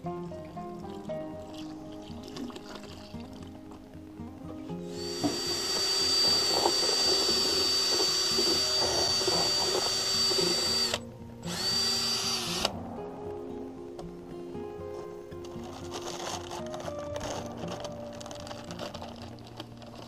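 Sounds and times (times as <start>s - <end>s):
drill motor whining: 4.9s - 12.7s.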